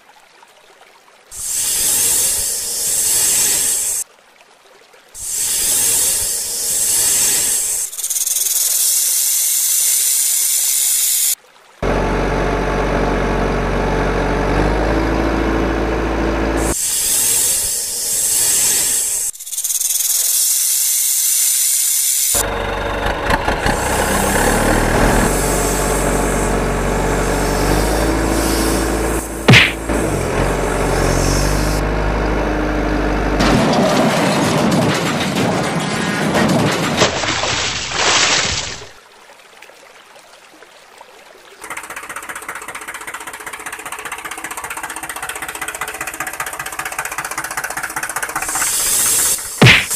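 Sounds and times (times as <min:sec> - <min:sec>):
snake hissing: 0:01.3 - 0:04.0, 0:05.2 - 0:11.4, 0:16.6 - 0:22.4, 0:25.1 - 0:30.2, 0:30.9 - 0:31.8, 0:48.4 - 0:49.9
truck engine running: 0:11.8 - 0:19.3, 0:22.4 - 0:36.8, 0:41.6 - 0:49.9.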